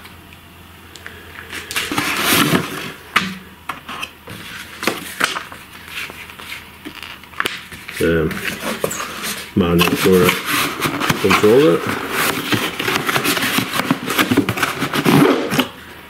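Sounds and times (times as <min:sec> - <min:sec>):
plastic bag rustling: 0:04.3 - 0:15.8.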